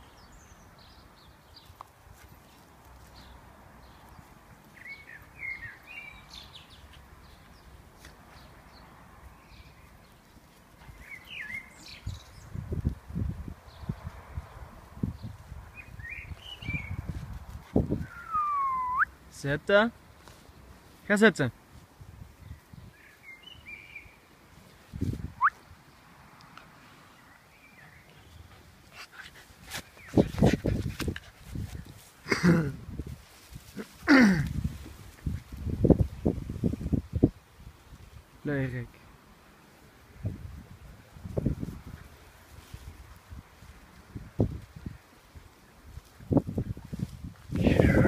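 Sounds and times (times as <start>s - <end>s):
dogs wrestling on grass: 0.8s - 18.1s, 24.4s - 38.2s, 39.4s - 48.0s
short high chirps: 18.2s - 19.1s.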